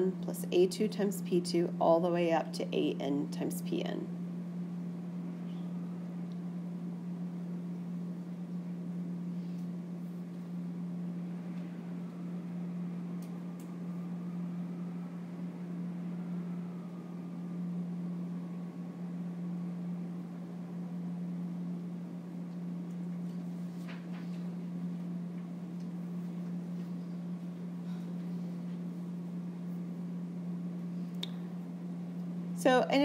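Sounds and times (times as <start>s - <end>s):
low hum: 0.0s - 33.0s.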